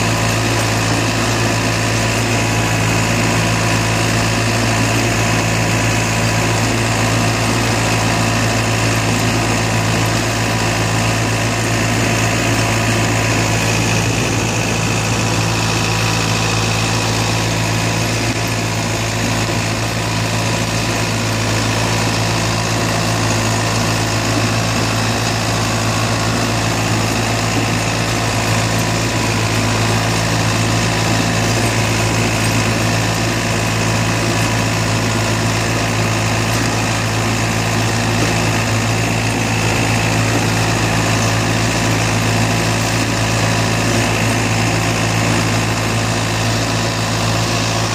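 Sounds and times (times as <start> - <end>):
tractor engine running: 0.0 - 47.9.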